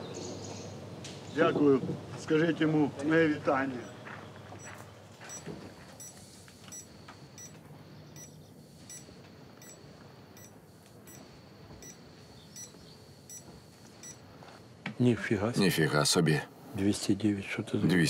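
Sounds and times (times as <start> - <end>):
short electronic beeps: 4.6 - 11.2, 11.8 - 14.2.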